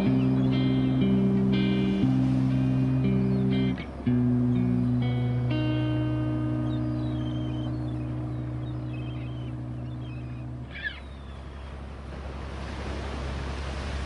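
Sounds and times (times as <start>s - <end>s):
background music chord: 0.0s - 10.8s
boat engine rumble: 0.0s - 14.0s
wind and sea noise: 0.0s - 14.0s.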